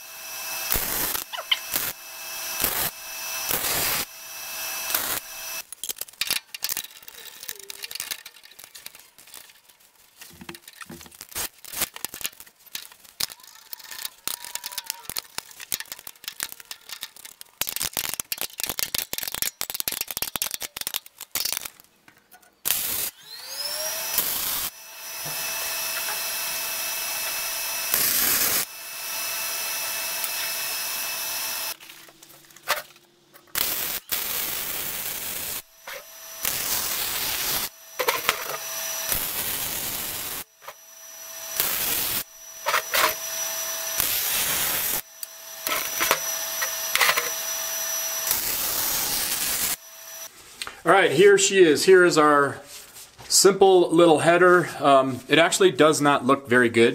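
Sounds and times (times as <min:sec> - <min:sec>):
power tool whining: 0:00.0 - 0:05.7, 0:22.6 - 0:32.8, 0:33.4 - 0:50.3
welder crackling: 0:00.0 - 0:52.4.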